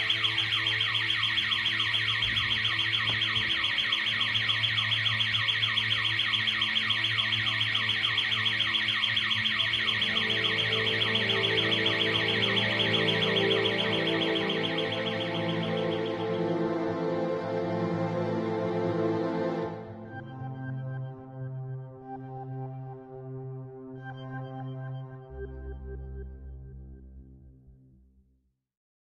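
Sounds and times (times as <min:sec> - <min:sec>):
alarm siren sweeping tone: 0:00.0 - 0:21.4.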